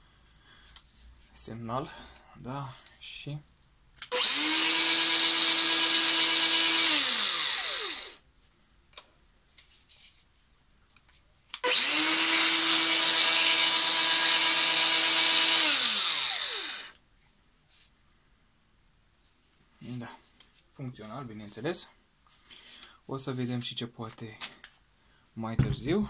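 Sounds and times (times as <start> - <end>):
angle grinder motor whining: 4.0 - 8.2, 11.6 - 17.0.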